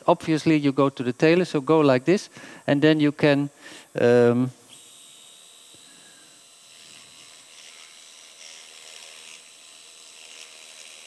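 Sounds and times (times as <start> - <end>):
suction hiss: 3.4 - 9.5
surgical shaver whine: 3.9 - 11.0.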